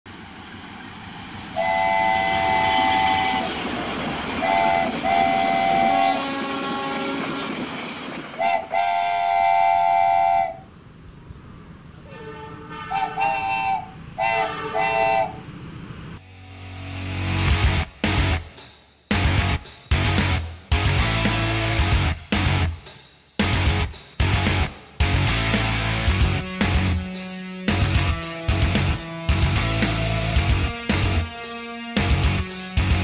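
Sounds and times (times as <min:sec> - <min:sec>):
train rumbling: 0:00.1 - 0:16.2, 0:19.2 - 0:22.8, 0:23.4 - 0:33.0
train horn blasts: 0:01.5 - 0:03.6, 0:04.4 - 0:07.7, 0:08.4 - 0:10.7, 0:12.0 - 0:15.5
short horn toots: 0:01.6 - 0:03.5, 0:04.4 - 0:07.4, 0:08.4 - 0:10.7, 0:12.0 - 0:15.4.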